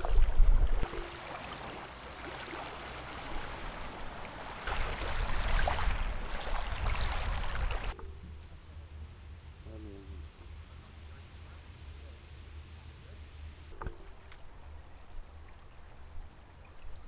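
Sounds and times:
wind rumbling on microphone: 0.0s - 1.1s, 3.1s - 17.0s
lake water lapping: 0.0s - 8.0s.

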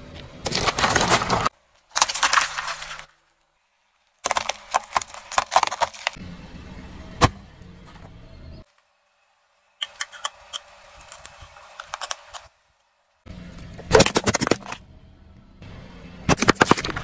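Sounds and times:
tyre crushing small objects: 0.2s - 6.2s, 13.6s - 14.8s, 16.3s - 17.0s.

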